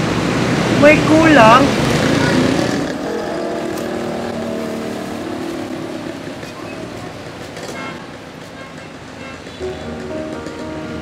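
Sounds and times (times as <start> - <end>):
street traffic: 0.0 - 11.0
steady tones: 2.8 - 7.4.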